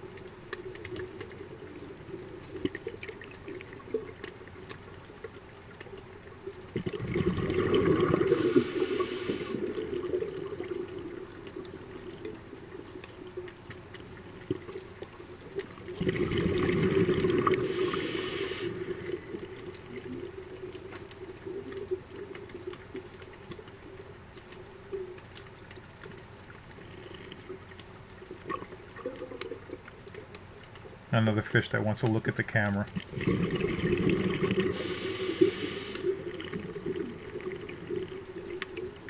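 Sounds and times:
underwater exhaled breath bubbling: 6.7 - 12.9, 15.8 - 22.6, 33.0 - 39.0.

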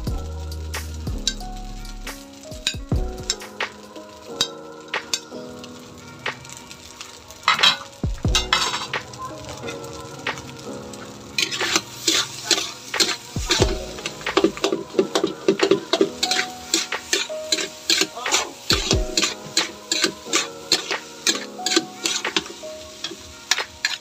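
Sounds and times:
spatula scraping a metal wok: 6.5 - 9.1, 11.4 - 24.0.

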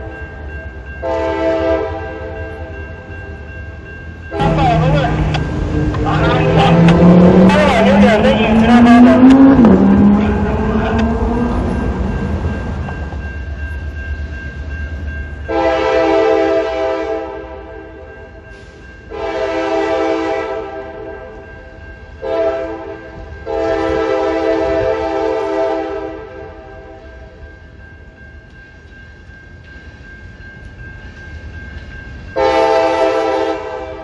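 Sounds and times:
low rumble of moving train: 0.0 - 34.0
locomotive air horn blasts: 1.0 - 2.1, 15.5 - 17.6, 19.1 - 21.2, 22.2 - 26.6, 32.4 - 34.0.

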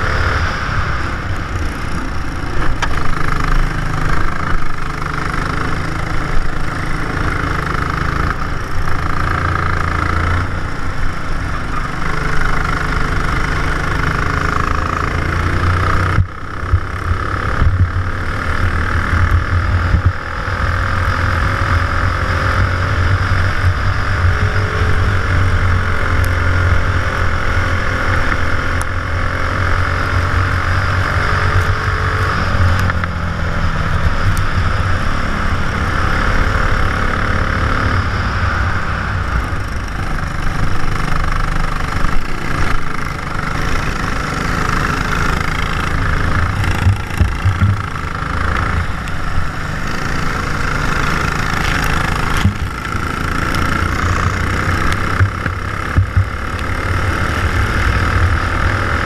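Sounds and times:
kart engine running hard: 0.0 - 59.0.

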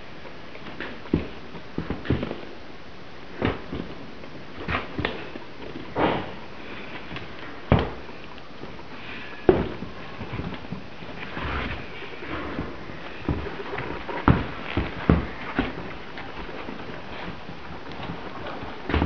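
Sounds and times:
boots thumping on tabletop: 0.7 - 2.5, 3.4 - 4.0, 4.6 - 6.4, 7.0 - 8.8, 9.4 - 19.0.

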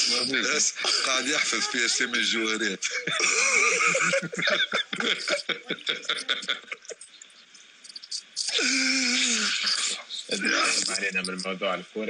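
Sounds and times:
men speaking: 0.0 - 7.2, 8.4 - 12.0
men laughing: 2.8 - 7.2.

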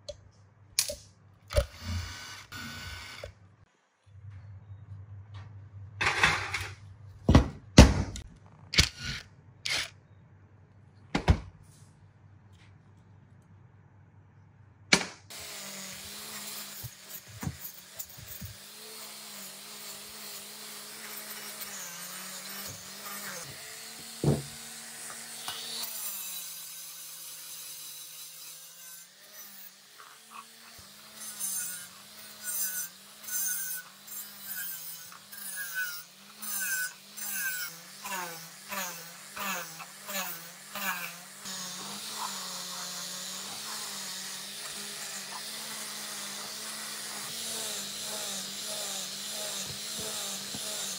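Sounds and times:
angle grinder grinding metal: 1.5 - 3.3, 8.8 - 9.9, 15.3 - 50.9.

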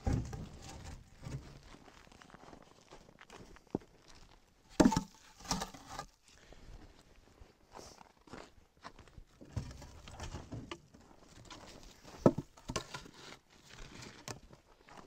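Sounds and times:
firewood knocking on stack: 4.8 - 6.0, 12.2 - 13.0.

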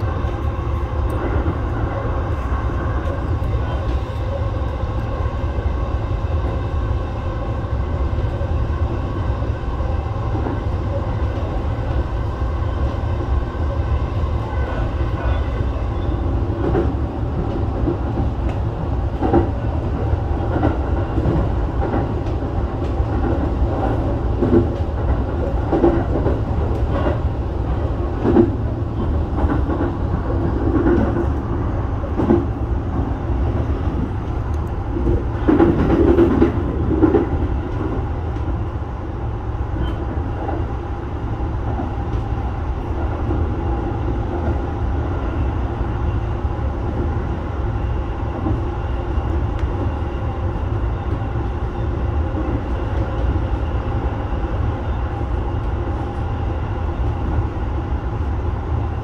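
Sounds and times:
train low rumble: 0.0 - 59.0
wheels clicking and knocking on rails: 16.6 - 38.6.

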